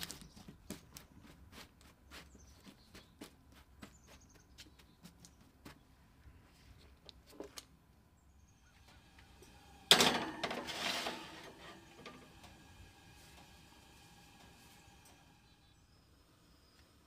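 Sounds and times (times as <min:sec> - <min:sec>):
baking sheet clanking on rack: 0:09.9 - 0:12.7
baking sheet scraping slide: 0:09.9 - 0:15.2.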